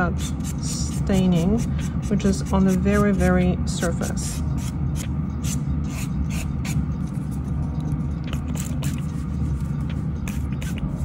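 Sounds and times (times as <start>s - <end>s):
nail buffer scratching fingernail: 0.0s - 3.2s, 10.2s - 11.0s
dust collector fan hum: 0.0s - 11.0s.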